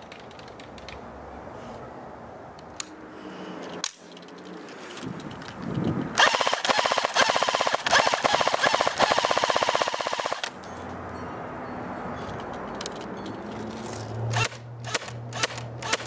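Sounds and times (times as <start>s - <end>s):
airsoft gun firing full auto: 6.2s - 10.5s, 14.4s - 16.0s.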